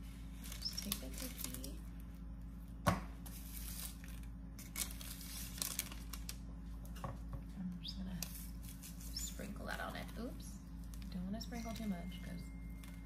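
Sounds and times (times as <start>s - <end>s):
parchment paper rustling: 0.0s - 7.3s, 8.0s - 13.0s.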